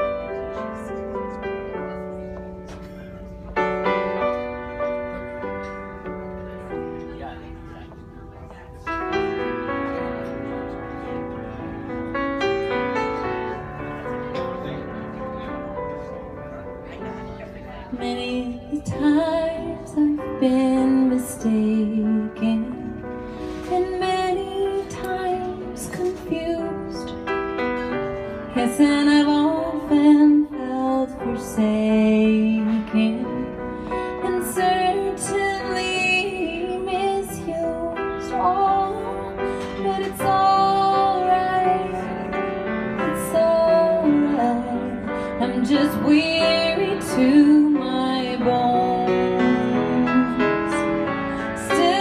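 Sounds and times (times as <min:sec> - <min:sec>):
grand piano: 0:00.0 - 0:52.0
woman singing a ballad: 0:17.8 - 0:52.0.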